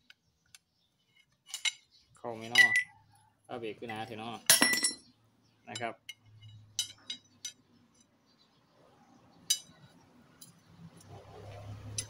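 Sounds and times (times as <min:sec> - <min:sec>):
metal tyre levers clinking: 0:01.5 - 0:03.0, 0:04.5 - 0:05.1, 0:05.8 - 0:08.1, 0:09.4 - 0:10.7.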